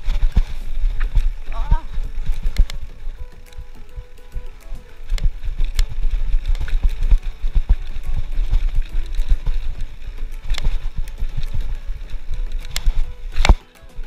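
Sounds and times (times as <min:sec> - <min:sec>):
wind rumble on microphone: 0:00.0 - 0:13.6
bike frame rattling and clicking: 0:00.0 - 0:14.0
bike tyres on dirt: 0:00.0 - 0:14.0.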